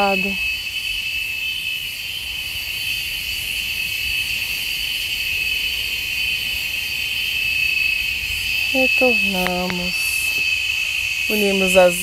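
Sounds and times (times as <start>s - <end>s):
insect chorus: 0.0s - 12.0s.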